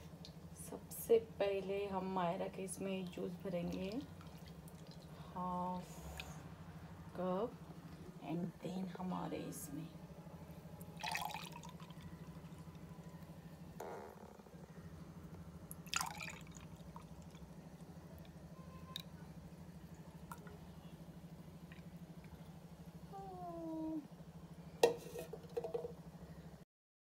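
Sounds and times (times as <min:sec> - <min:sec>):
steady low hum: 0:00.0 - 0:26.6
juice trickling into glass: 0:11.0 - 0:12.8, 0:15.7 - 0:17.5.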